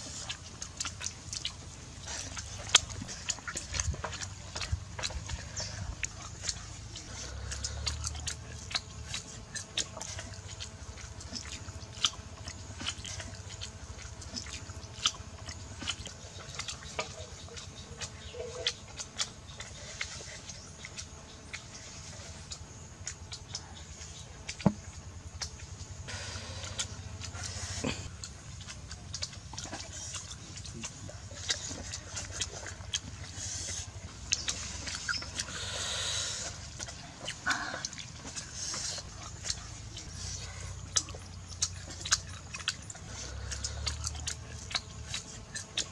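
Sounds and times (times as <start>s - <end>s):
low steady rumble: 0.0s - 45.9s
people chewing and lip smacking: 0.0s - 45.9s
sharp mouth clicks: 0.1s - 45.9s
eggshell clicks and crackles: 36.6s - 45.9s.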